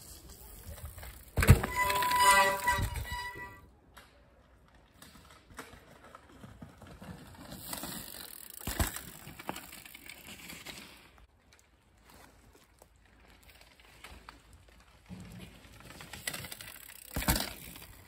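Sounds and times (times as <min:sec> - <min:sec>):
bike tyres crunching on dirt: 0:00.0 - 0:03.6, 0:04.5 - 0:18.0
bike thump: 0:01.3 - 0:03.6, 0:17.1 - 0:17.8.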